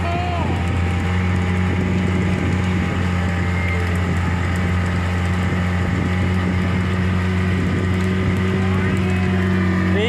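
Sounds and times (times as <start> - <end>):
boat engine droning: 0.0 - 10.0
wind and water hiss: 4.0 - 9.3.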